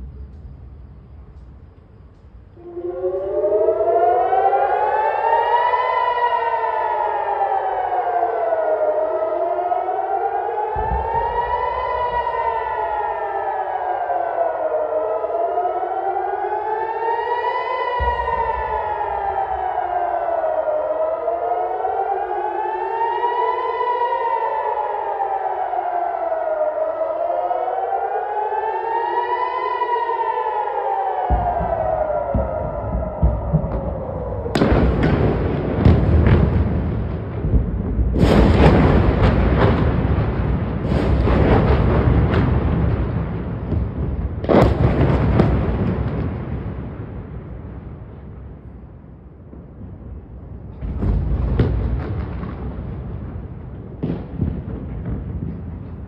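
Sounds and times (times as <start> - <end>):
air-raid siren wailing: 2.2 - 56.0
dull low thumps: 31.3 - 38.6.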